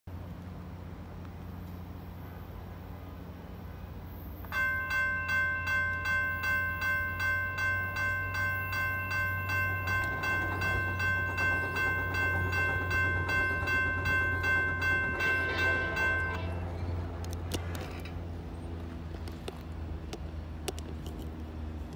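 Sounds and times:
railroad crossing bell ringing: 4.0s - 18.0s.

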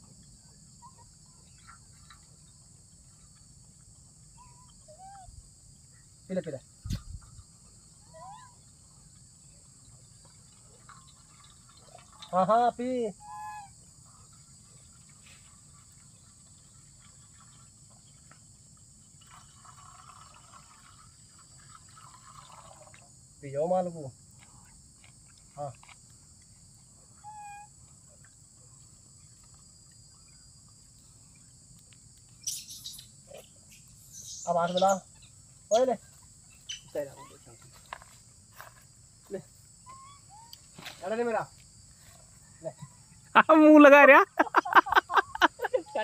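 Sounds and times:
insect hiss: 0.0s - 46.0s
steady high hiss: 30.1s - 38.6s.

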